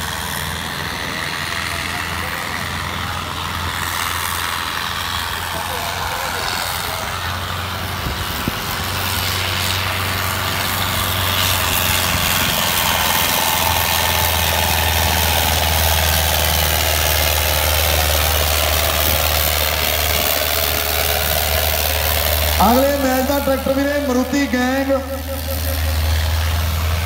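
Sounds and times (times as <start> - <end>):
tractor diesel engine under load: 0.0 - 27.0.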